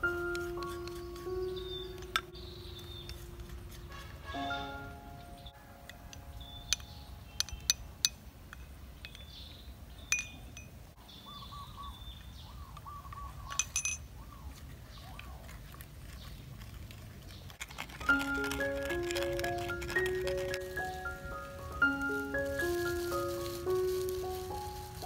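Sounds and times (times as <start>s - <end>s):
background music: 0.0s - 8.0s, 17.9s - 25.0s
spoon clinking on ceramic bowls: 5.9s - 9.3s, 10.1s - 10.8s, 13.5s - 14.1s.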